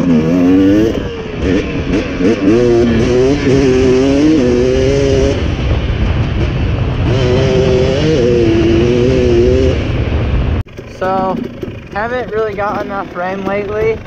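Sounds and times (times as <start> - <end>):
wind rushing: 0.0 - 11.8
dirt bike engine revving: 0.0 - 14.0.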